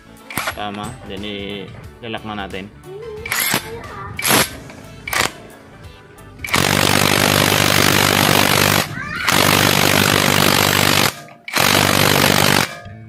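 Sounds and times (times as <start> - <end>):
impact wrench hammering: 4.2 - 5.5, 6.4 - 13.0.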